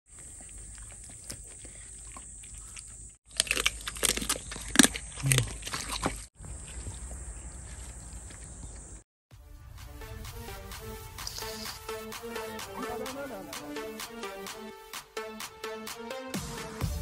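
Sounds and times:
pet chewing and crunching: 0:00.1 - 0:09.0.

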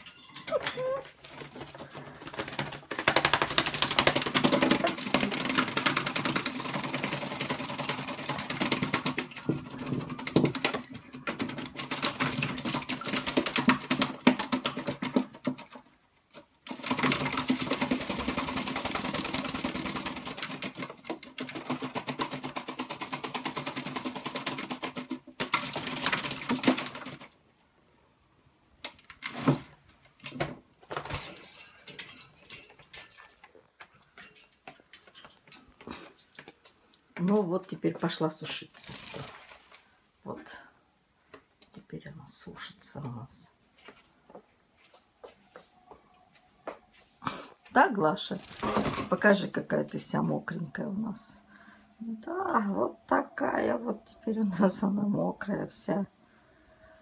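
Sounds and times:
bird splashing in water: 0:38.9 - 0:39.8.

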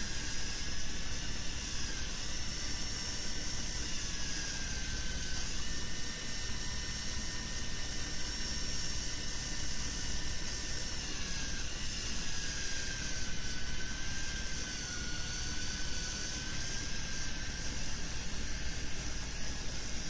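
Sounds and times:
fishing reel motor whining: 0:00.0 - 0:20.0.

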